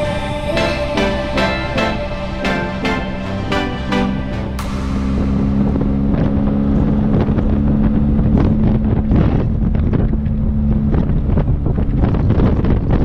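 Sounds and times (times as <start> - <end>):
wind rush on microphone: 4.7 - 13.0
motorcycle engine cruising: 4.8 - 13.0.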